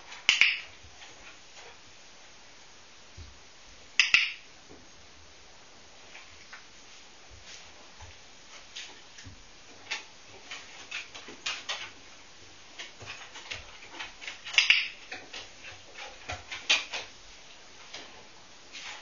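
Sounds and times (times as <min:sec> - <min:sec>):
dog claws tapping on wooden floor: 0:09.2 - 0:12.0, 0:12.8 - 0:17.1
dog scratchy scuffle: 0:18.7 - 0:19.0.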